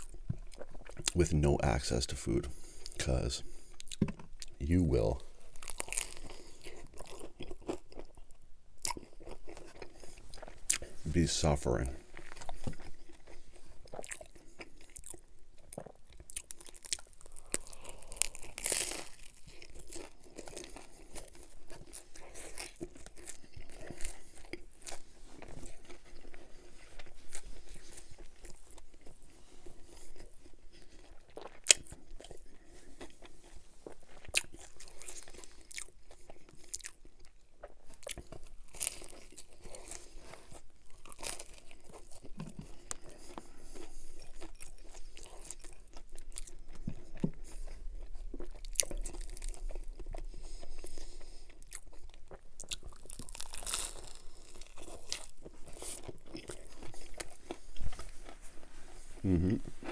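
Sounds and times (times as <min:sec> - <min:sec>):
crunchy pizza crust bites: 0:00.0 - 0:58.4.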